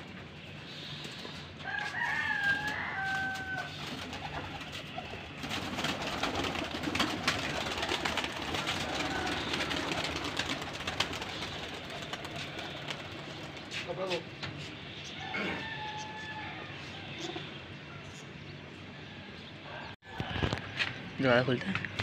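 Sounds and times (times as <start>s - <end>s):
pigeon wings flapping: 2.4s - 14.2s.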